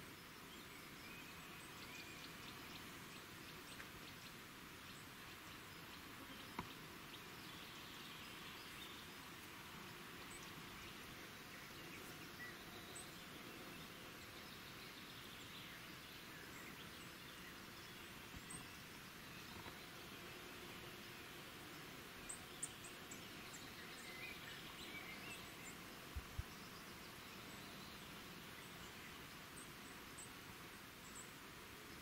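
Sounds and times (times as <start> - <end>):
steady hiss: 0.0 - 32.0
faint ticks: 6.4 - 6.8.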